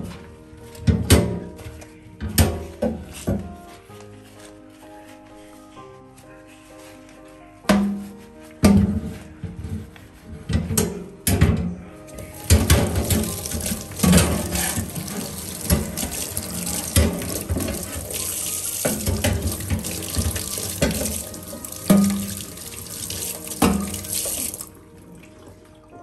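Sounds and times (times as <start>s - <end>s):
tap running into metal sink: 12.4s - 24.7s.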